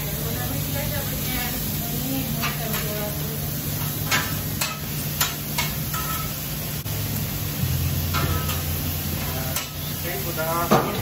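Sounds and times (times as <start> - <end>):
food sizzling on griddle: 0.0 - 11.0
steady low hum: 6.8 - 10.4.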